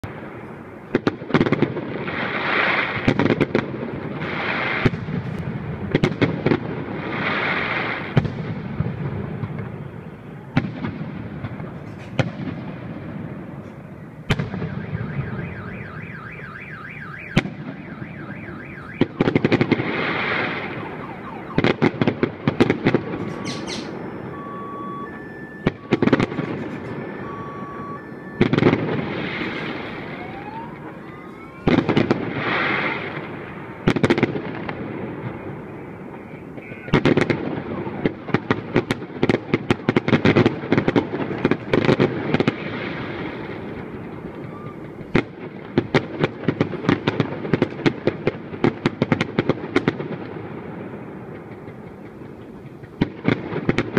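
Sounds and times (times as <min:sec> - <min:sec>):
firework bangs: 0:00.0 - 0:53.9
firework crackling: 0:00.0 - 0:53.9
car alarm tones: 0:13.9 - 0:19.6, 0:20.5 - 0:22.1, 0:22.8 - 0:33.1, 0:35.3 - 0:38.6, 0:44.2 - 0:45.0.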